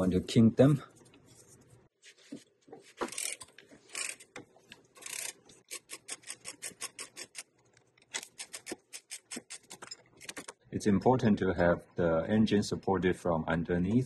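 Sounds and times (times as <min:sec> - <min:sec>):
socket ratchet clicking: 0:05.0 - 0:07.4.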